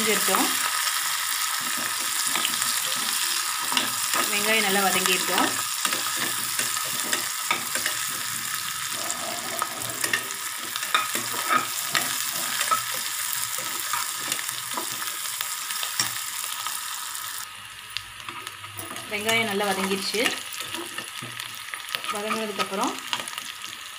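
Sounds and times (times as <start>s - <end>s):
shallots sizzling in hot oil: 0.0s - 23.9s
metal spoon scraping a pot: 5.3s - 15.0s.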